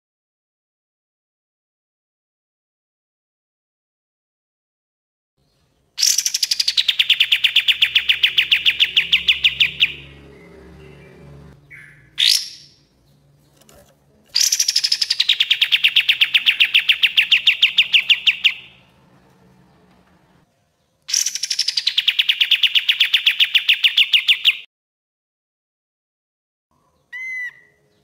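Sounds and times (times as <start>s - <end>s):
bulbul singing rapid notes: 6.0s - 12.8s, 14.4s - 18.8s.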